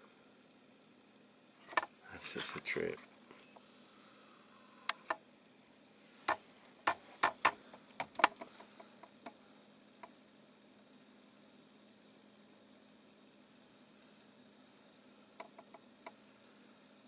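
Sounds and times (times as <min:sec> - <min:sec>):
faint hiss: 0:00.0 - 0:17.0
sharp clicks and taps: 0:06.3 - 0:09.4, 0:15.4 - 0:16.2.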